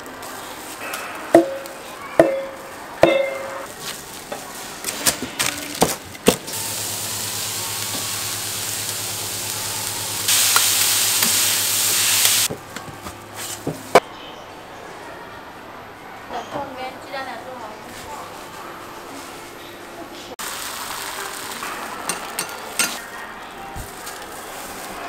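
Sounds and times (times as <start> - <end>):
metal utensils clanking on griddle: 0.8 - 3.8, 21.5 - 23.2
batter sizzling on griddle: 6.5 - 12.5, 20.4 - 22.9.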